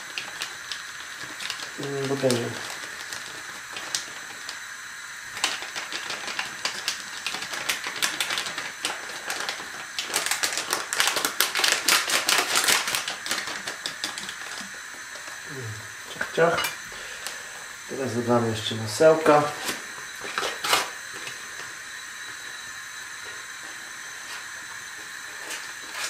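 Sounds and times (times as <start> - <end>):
foil sachet crinkling: 0.0 - 14.9, 25.2 - 26.0.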